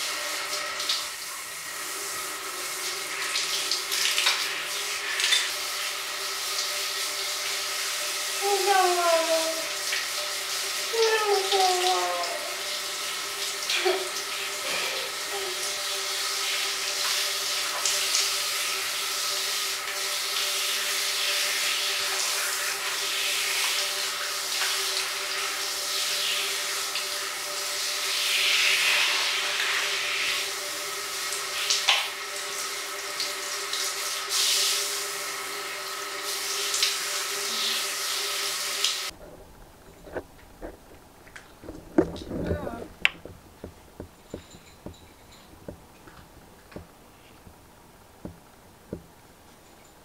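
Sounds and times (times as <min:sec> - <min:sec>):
shower head spraying water: 0:00.0 - 0:39.1.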